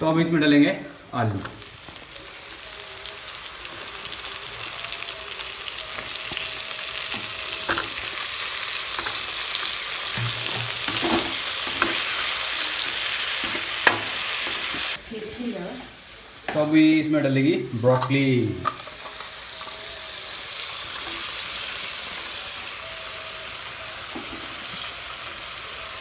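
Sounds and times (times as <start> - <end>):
food sizzling in oil: 0.0 - 26.0
spatula scraping a pan: 8.9 - 15.0.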